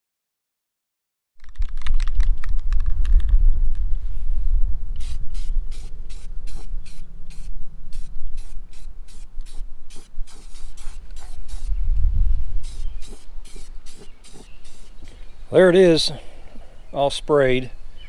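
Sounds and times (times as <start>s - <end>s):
low rumble: 2.2s - 9.9s, 11.0s - 12.8s
spray can hissing bursts: 5.0s - 11.8s, 12.6s - 15.1s.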